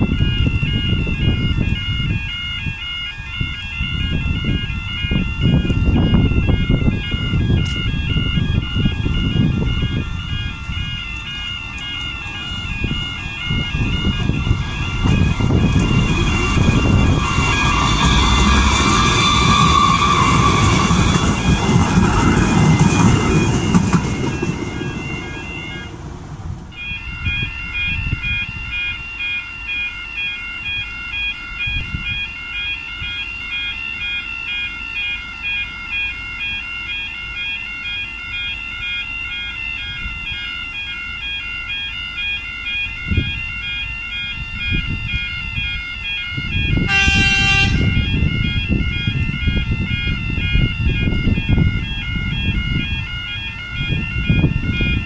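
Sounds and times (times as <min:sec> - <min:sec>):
train rumbling: 0:00.0 - 0:29.0, 0:42.7 - 0:55.0
level crossing alarm warbling: 0:00.0 - 0:55.0
loud train horn blast: 0:12.8 - 0:23.5, 0:46.7 - 0:48.1.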